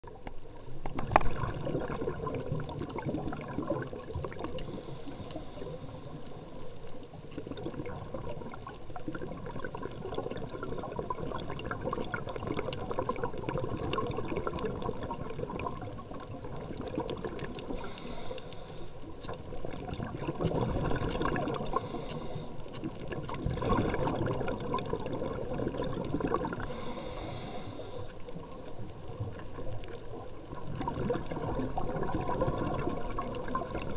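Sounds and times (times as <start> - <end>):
muffled underwater crackling: 0.0 - 33.9
hissing water rushes: 17.0 - 19.1, 20.0 - 29.4.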